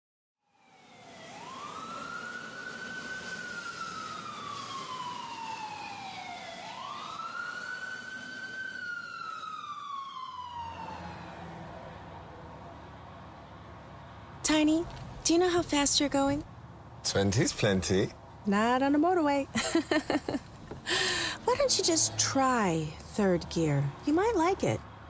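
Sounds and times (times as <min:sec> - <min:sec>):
siren wailing: 0:00.6 - 0:12.1.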